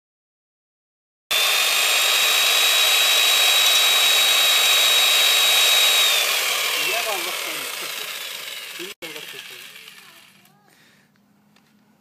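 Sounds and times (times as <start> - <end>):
electric chainsaw running: 1.3 - 10.7.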